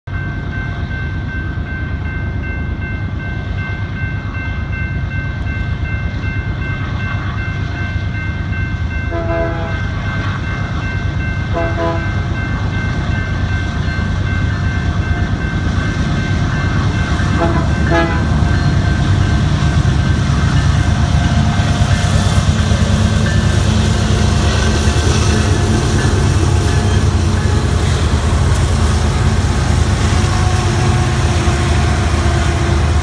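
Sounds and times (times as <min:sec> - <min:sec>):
freight train rumble: 0:00.1 - 0:33.0
train horn blasts: 0:09.1 - 0:10.5, 0:11.4 - 0:12.3, 0:17.2 - 0:18.6, 0:24.2 - 0:33.0.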